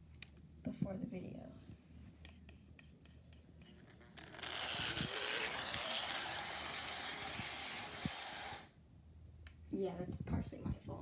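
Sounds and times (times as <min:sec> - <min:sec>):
model train motor whirring: 0:04.0 - 0:08.7.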